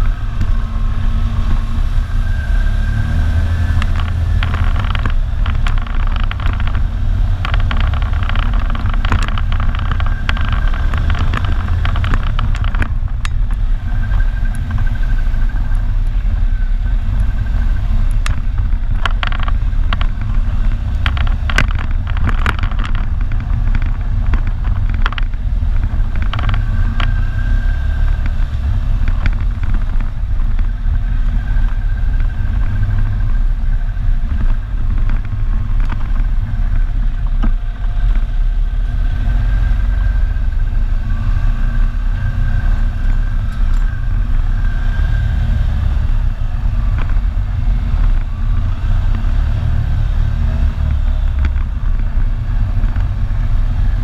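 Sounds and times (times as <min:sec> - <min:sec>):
knocks and clatter: 0:03.7 - 0:15.9, 0:18.0 - 0:33.3.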